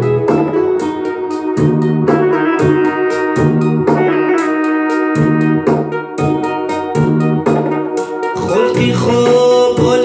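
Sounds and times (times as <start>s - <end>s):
keyboard instrumental with drum beat: 0.0s - 10.0s.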